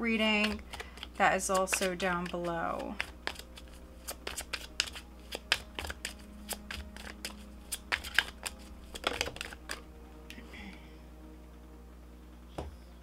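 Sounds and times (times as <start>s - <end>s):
cards being shuffled: 0.1s - 9.9s.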